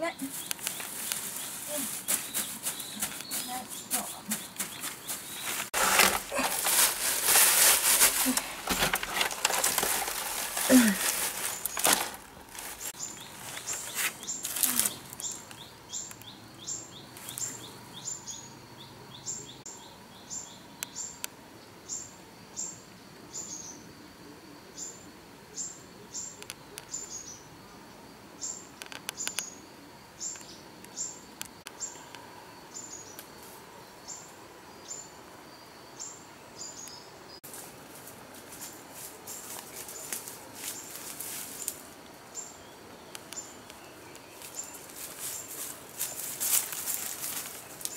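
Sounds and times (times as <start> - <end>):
small bird chirping: 0.0 - 5.8
sharp rustles: 0.3 - 15.2, 44.4 - 47.9.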